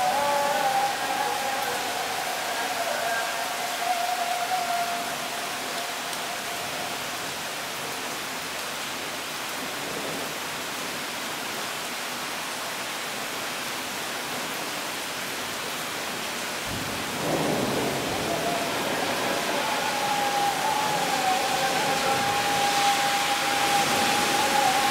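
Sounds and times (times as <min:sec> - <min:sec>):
heavy rain pouring: 0:00.0 - 0:24.9
low rumble of thunder: 0:16.7 - 0:19.9.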